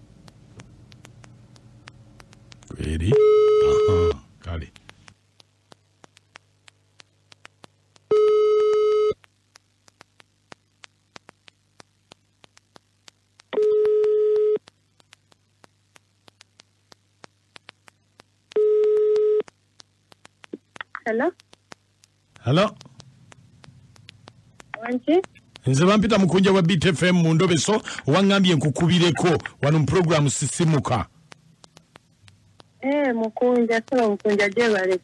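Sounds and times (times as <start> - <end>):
low phone line hum: 0.0 - 35.0
faint line clicks: 0.2 - 2.7, 8.7 - 25.7.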